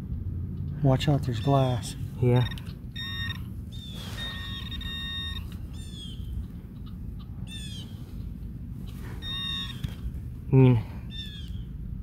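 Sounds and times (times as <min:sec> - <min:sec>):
pinpointer electronic tone: 0:01.3 - 0:05.6, 0:09.2 - 0:10.0
bird whistled call: 0:09.2 - 0:09.8.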